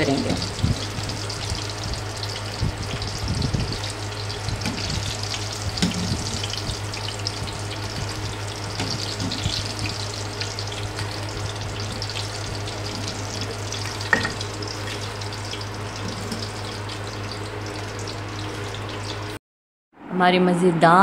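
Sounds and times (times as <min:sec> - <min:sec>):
hot oil sizzling and crackling: 0:00.0 - 0:19.4
steady low hum: 0:00.0 - 0:19.4
wire skimmer knocking in pan: 0:13.9 - 0:14.9.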